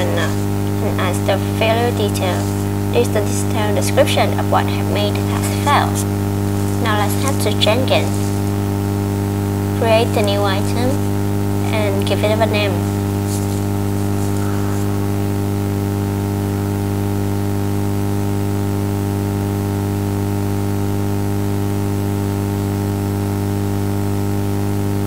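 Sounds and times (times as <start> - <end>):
background hiss: 0.0 - 17.6
electrical hum: 0.0 - 25.0.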